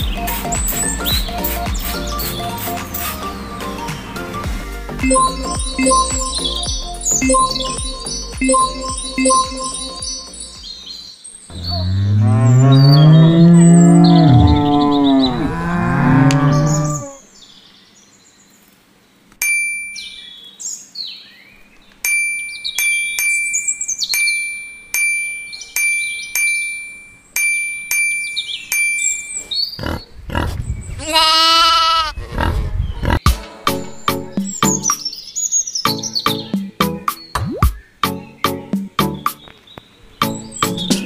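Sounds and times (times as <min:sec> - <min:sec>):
birds chirping: 0:00.0 - 0:33.2, 0:33.9 - 0:41.0
cow mooing: 0:11.5 - 0:17.2
wavering animal bleat: 0:11.5 - 0:17.3, 0:31.0 - 0:33.2
small bell ringing: 0:19.4 - 0:20.2, 0:22.1 - 0:29.4.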